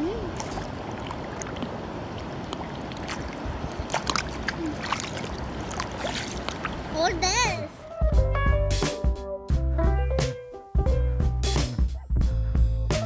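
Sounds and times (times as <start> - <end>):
creek water running over rock: 0.0 - 7.7
hands splashing in water: 0.3 - 6.9.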